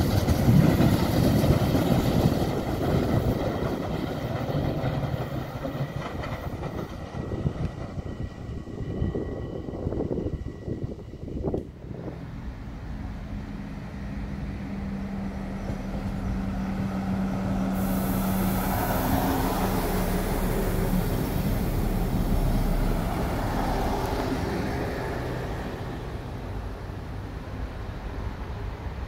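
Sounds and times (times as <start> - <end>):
diesel railcar engine drone: 0.0 - 29.0
train wheels on rails rumbling: 0.0 - 29.0.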